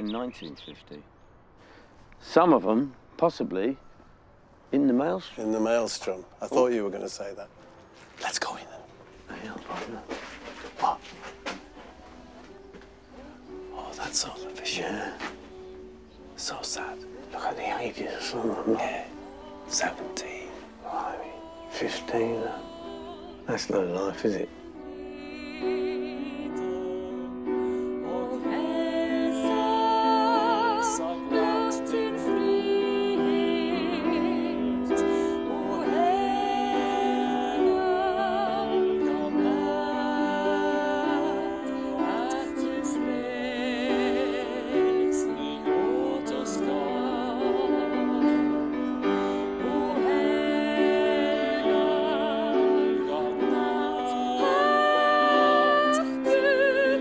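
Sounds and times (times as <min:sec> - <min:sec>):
sustained accompaniment: 0:06.4 - 0:57.0
woman singing with vibrato: 0:18.8 - 0:23.6, 0:24.5 - 0:57.0.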